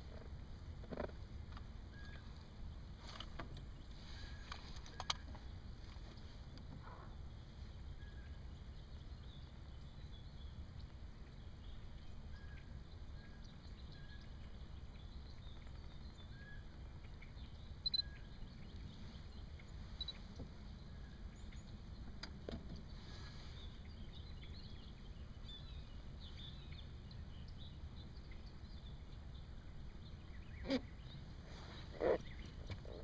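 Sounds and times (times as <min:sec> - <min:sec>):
low steady rumble: 0:00.0 - 0:33.0
faint bird chirps: 0:01.9 - 0:02.9, 0:03.7 - 0:22.2.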